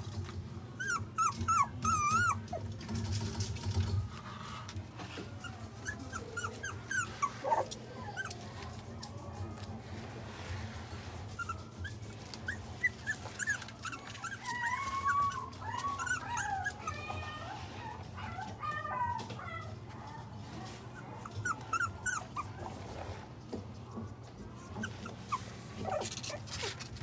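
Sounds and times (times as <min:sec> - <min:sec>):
puppy whimpering: 0:00.0 - 0:03.0, 0:05.2 - 0:09.1, 0:11.3 - 0:19.7, 0:20.9 - 0:23.0, 0:24.4 - 0:27.0
puppy whining: 0:00.0 - 0:04.2, 0:05.0 - 0:09.7, 0:11.2 - 0:23.2, 0:24.4 - 0:27.0.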